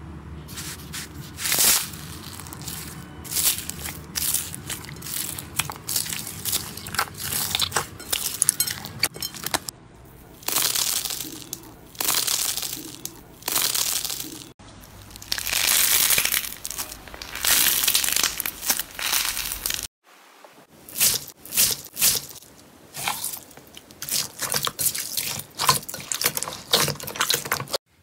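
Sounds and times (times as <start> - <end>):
honeycomb slime squeezes crackling: 0.5 - 8.7, 10.4 - 19.9
foil slime ball crinkling: 0.5 - 9.6, 10.4 - 19.9.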